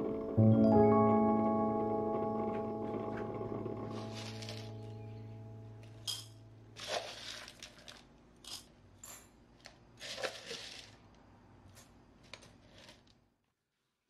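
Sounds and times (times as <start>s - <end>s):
dry kibble poured into bowls: 6.8s - 8.1s, 10.0s - 11.1s.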